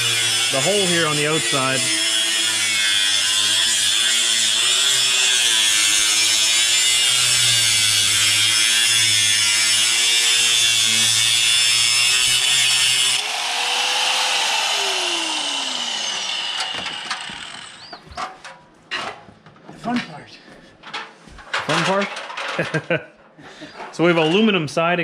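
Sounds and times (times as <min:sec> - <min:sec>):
angle grinder cutting metal: 0:00.0 - 0:18.1
grinder motor winding down: 0:00.0 - 0:18.1.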